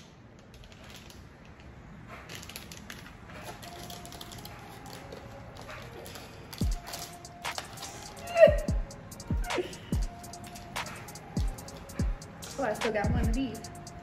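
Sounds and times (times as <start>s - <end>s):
plastic wrapper crinkling: 2.3s - 8.3s.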